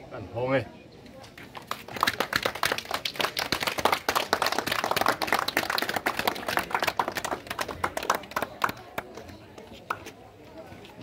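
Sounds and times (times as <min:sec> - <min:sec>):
group applauding: 0:01.7 - 0:09.2.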